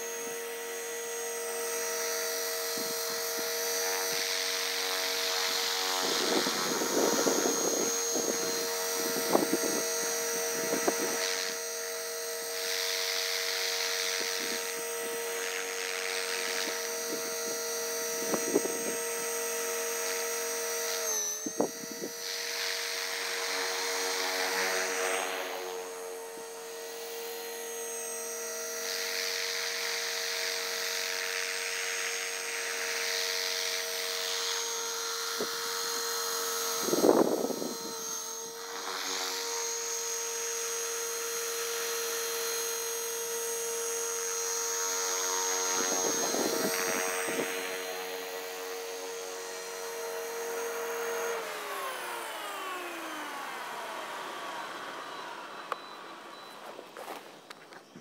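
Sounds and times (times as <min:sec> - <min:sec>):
rc helicopter whine: 0:00.0 - 0:58.0.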